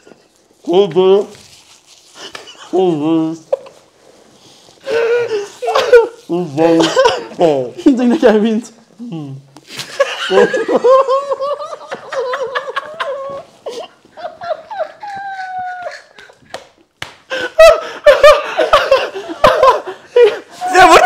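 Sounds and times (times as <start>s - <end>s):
men laughing hard: 4.8s - 7.6s, 9.8s - 16.4s, 17.3s - 20.9s.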